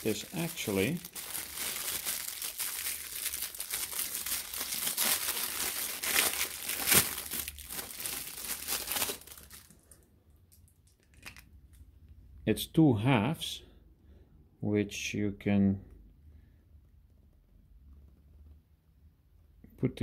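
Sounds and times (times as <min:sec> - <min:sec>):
plastic bag crinkling: 0:00.0 - 0:11.5.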